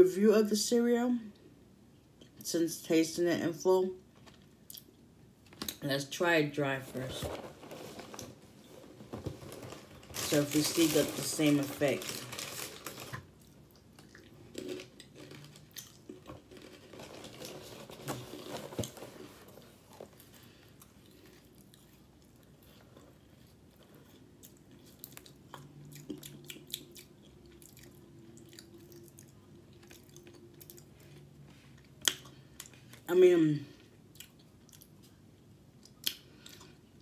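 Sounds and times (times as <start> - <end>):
person chewing crunchy cereal: 10.3 - 33.1.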